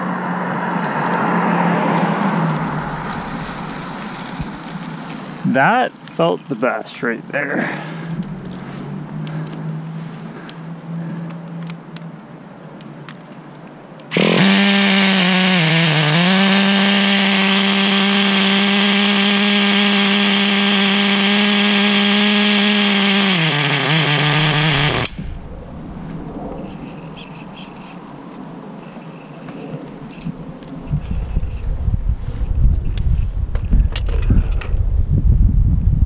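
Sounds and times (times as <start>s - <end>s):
small nitro engine running high: 14.1s - 25.2s.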